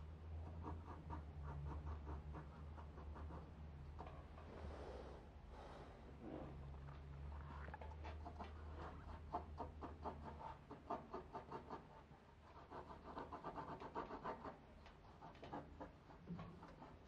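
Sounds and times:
pencil scratching on paper: 0:00.4 - 0:04.1, 0:08.0 - 0:17.0.

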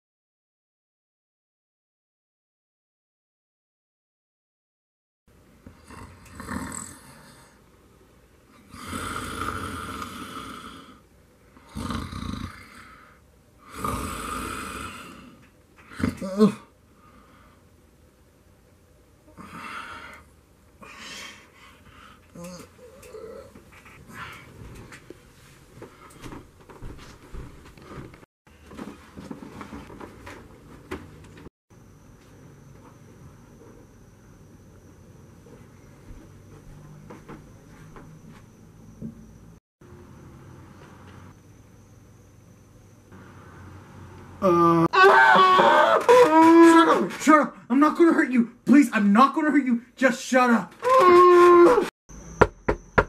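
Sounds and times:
man snoring: 0:05.7 - 0:07.6, 0:08.6 - 0:11.0, 0:11.6 - 0:16.6
footsteps: 0:23.6 - 0:31.5, 0:35.4 - 0:39.2.

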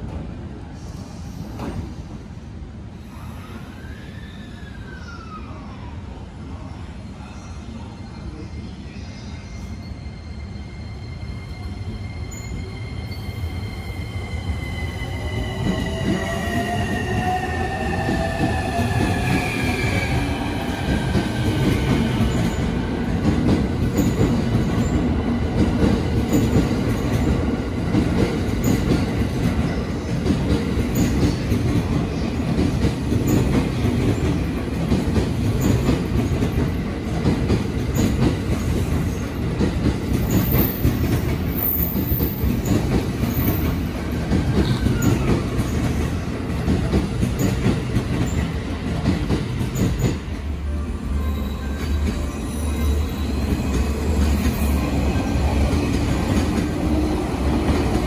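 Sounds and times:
train wheels rumbling and clacking: 0:13.6 - 0:58.0.

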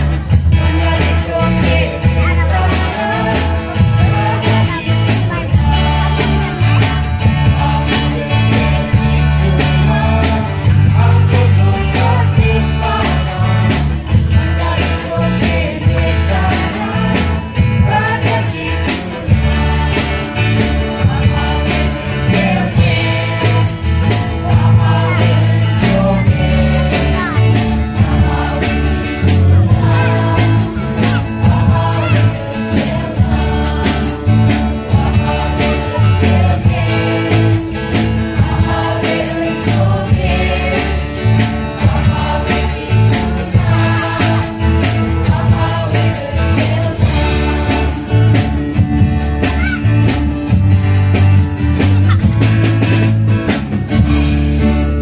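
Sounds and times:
women singing together: 0:00.0 - 0:48.6
backing track with beat and bass: 0:00.0 - 0:55.0.

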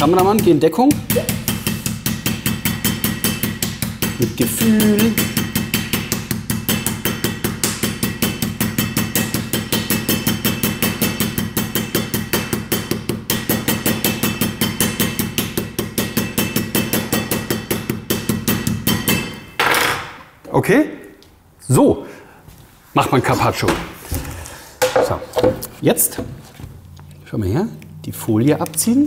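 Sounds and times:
meat mallet pounding meat: 0:00.0 - 0:19.4.

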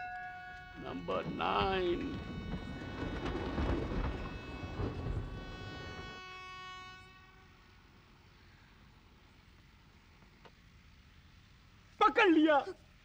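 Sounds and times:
train horn chord: 0:00.0 - 0:08.5
train rumbling: 0:00.5 - 0:07.2.

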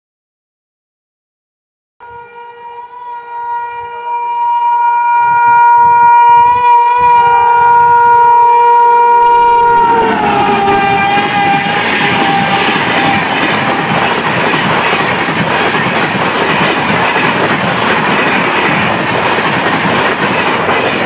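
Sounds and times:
train horn blast: 0:02.0 - 0:13.9
passing train coaches clatter: 0:06.0 - 0:21.0.

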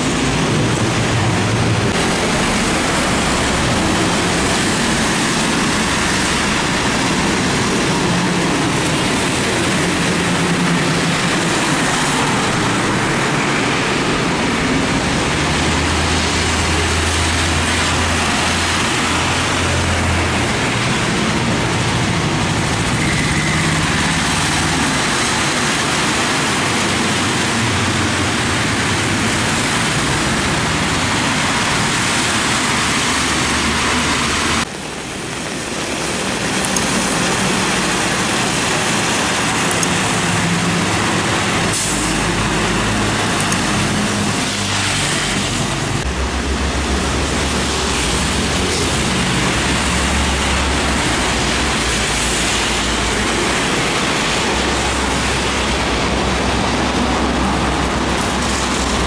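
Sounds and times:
truck engine drone: 0:00.0 - 0:59.0
tyres hissing on wet road: 0:00.0 - 0:59.0.

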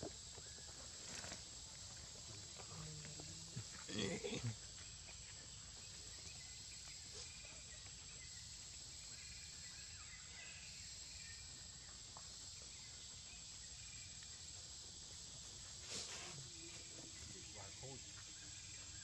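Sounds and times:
high-pitched insect drone: 0:05.8 - 0:19.0.

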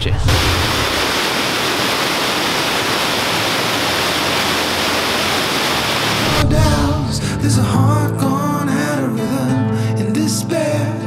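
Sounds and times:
waterfall rushing: 0:00.3 - 0:07.0
guitar music: 0:06.0 - 0:11.0.

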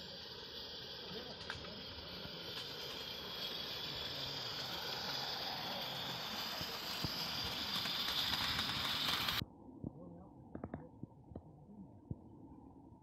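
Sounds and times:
steam locomotive hissing: 0:00.0 - 0:09.4.

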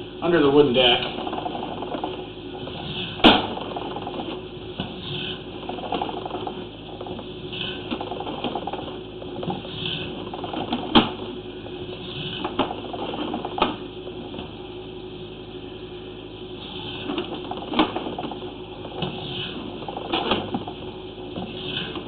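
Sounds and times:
cable mechanical rattle: 0:00.5 - 0:04.4, 0:05.1 - 0:11.2.

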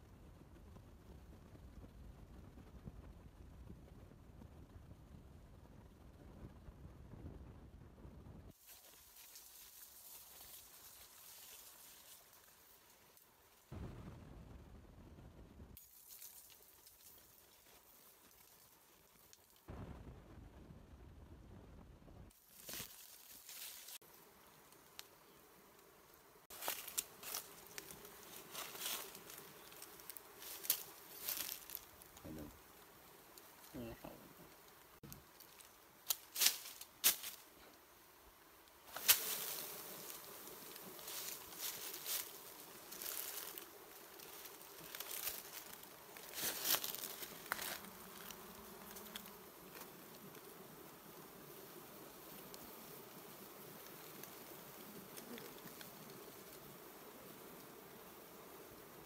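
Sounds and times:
leaves and twigs rustling: 0:08.5 - 0:13.7, 0:15.8 - 0:19.8, 0:22.3 - 0:25.4, 0:26.4 - 0:56.8
bees buzzing: 0:08.7 - 0:13.4, 0:22.4 - 0:59.0.

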